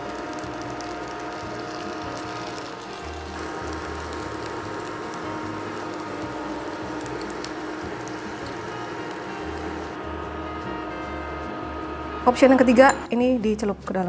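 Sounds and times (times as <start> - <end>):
meat sizzling in a frying pan: 0.0 - 10.0.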